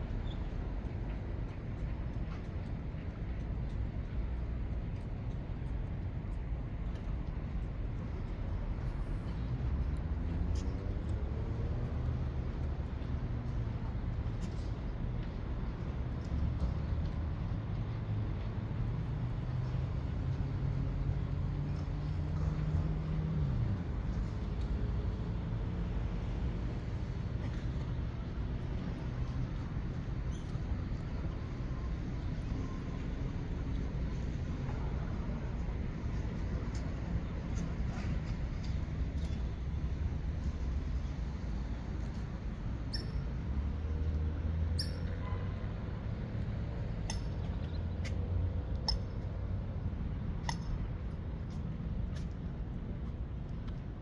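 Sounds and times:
low engine hum: 0.0s - 54.0s
high squeaks or chirps: 42.9s - 43.3s, 44.7s - 45.2s.

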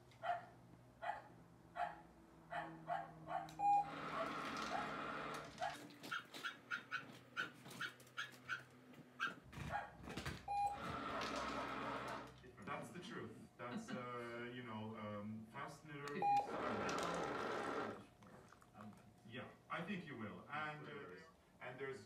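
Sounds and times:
television sound: 0.0s - 22.0s
small dog barking: 0.2s - 3.6s, 5.6s - 10.0s
short electronic beep: 3.6s - 3.9s.

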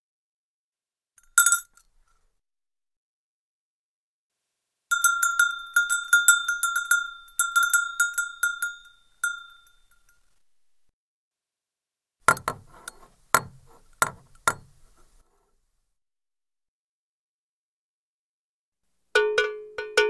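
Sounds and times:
cowbell clanking: 1.2s - 1.7s, 4.9s - 10.2s, 19.2s - 20.0s.

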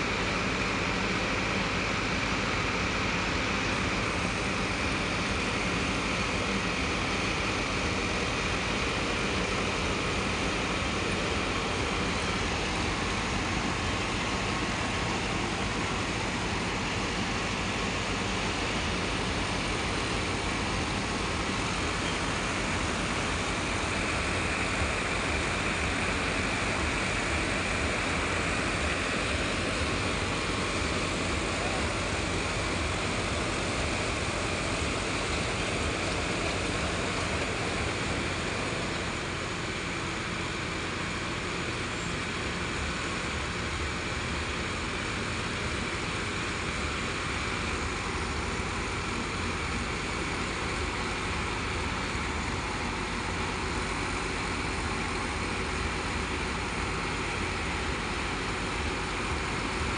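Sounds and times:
tractor diesel engines running: 0.0s - 59.9s.

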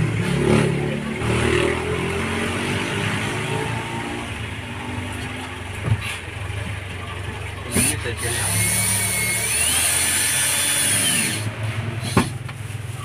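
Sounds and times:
vehicle engine running: 3.1s - 13.0s.

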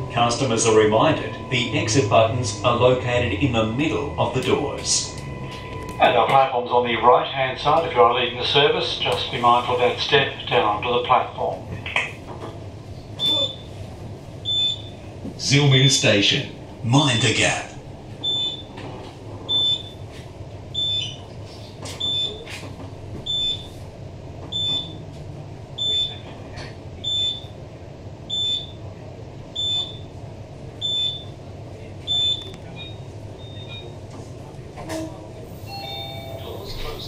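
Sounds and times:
high electronic beep: 0.0s - 6.2s
low hum of electric train: 0.0s - 37.0s.

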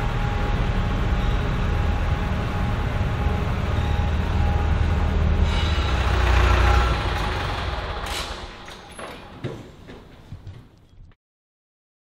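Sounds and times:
diesel tractor engine running: 0.0s - 9.6s.

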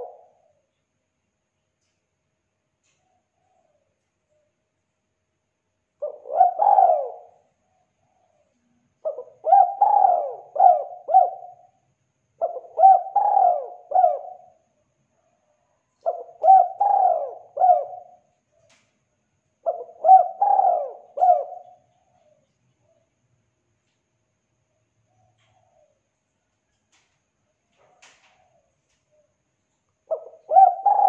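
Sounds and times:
dove cooing: 0.0s - 0.7s, 6.0s - 14.7s, 15.6s - 18.8s, 19.6s - 23.0s, 25.0s - 26.1s, 27.7s - 29.4s, 30.0s - 31.0s.

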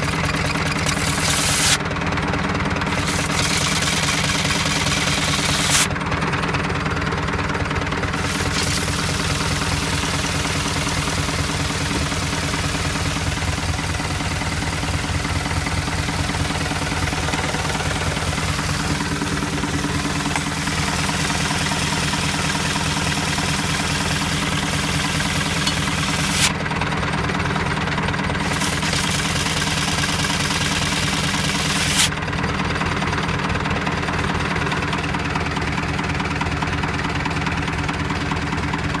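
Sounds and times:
tractor engine running: 0.0s - 39.0s.

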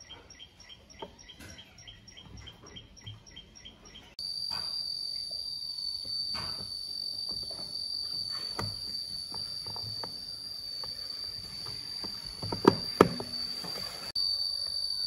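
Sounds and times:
high insect trill: 4.1s - 15.0s.

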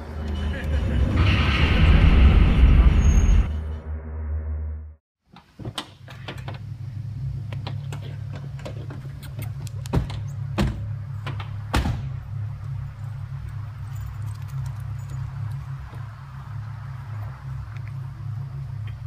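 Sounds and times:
steady low hum: 6.4s - 19.0s
car doors opening and shutting: 7.4s - 12.2s
car door slams: 11.7s - 12.1s.

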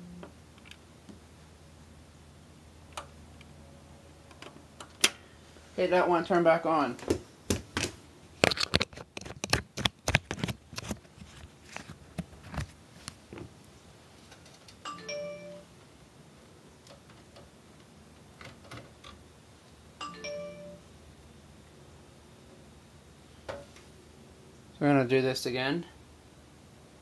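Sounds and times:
two-note electronic chime: 14.9s - 15.7s, 20.0s - 20.9s.

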